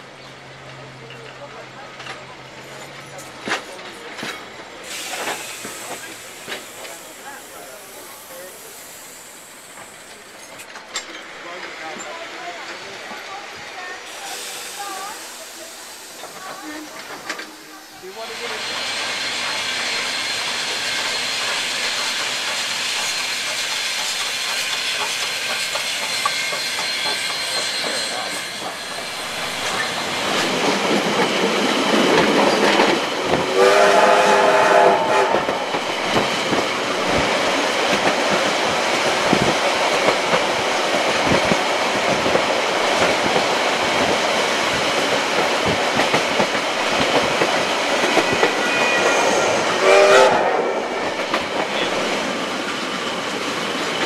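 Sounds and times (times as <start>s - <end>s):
steam hissing: 4.8s - 11.8s, 12.7s - 54.0s
train wheels clattering: 18.4s - 54.0s
train whistle blast: 33.5s - 35.5s, 48.4s - 51.0s.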